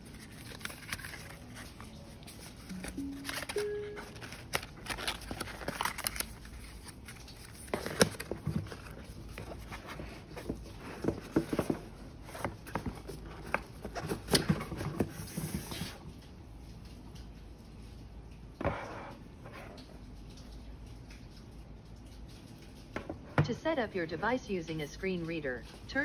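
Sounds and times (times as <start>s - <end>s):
paper rustling: 0.0s - 16.3s.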